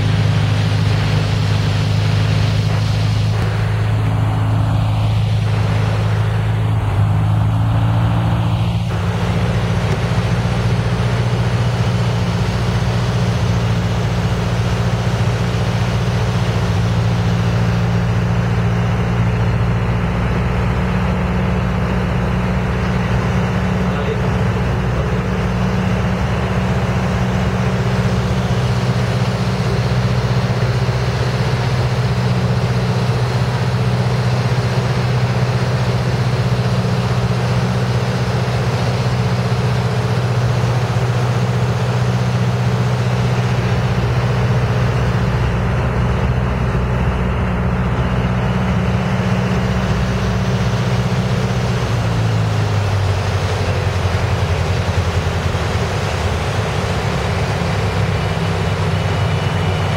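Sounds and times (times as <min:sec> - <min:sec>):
small plane engine and propeller: 0:00.0 - 0:59.9.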